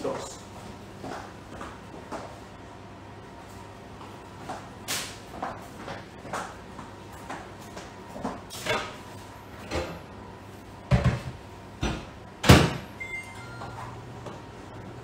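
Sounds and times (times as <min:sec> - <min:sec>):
short electronic beep: 0:13.0 - 0:13.9.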